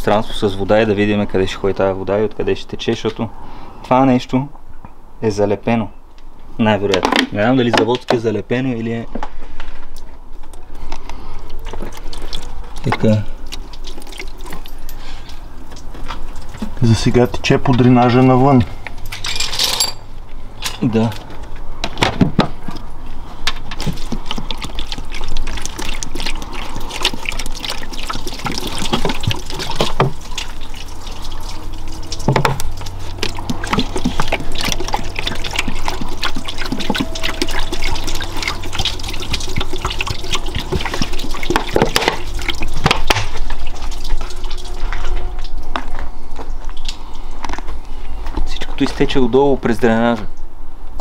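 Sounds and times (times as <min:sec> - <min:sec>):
water splashing onto car: 0:23.6 - 0:45.6.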